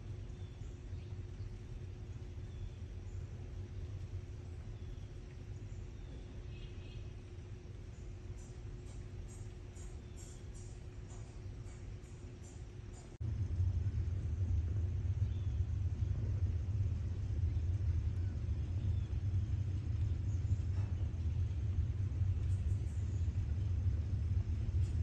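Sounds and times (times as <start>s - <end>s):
low rumble: 10.6s - 25.0s.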